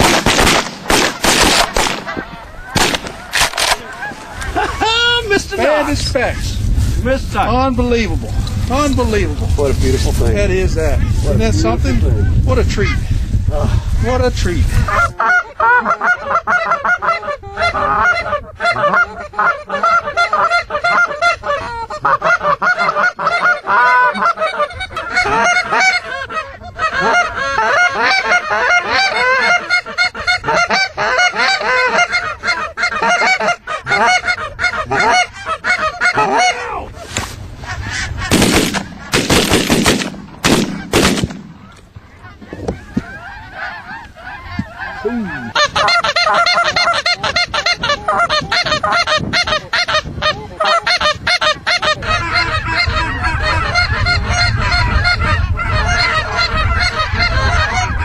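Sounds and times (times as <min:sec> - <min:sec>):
sharp loud bursts: 0:00.0 - 0:02.1, 0:02.8 - 0:03.8, 0:38.3 - 0:41.7
flock of geese honking: 0:00.9 - 0:06.4, 0:14.8 - 0:58.0.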